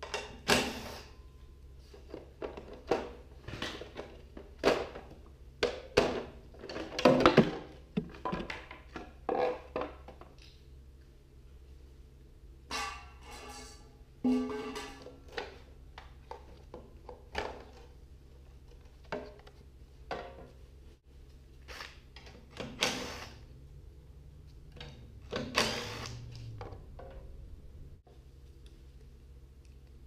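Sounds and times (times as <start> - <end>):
parts and tools clattering: 2.0 - 10.2, 12.7 - 18.0.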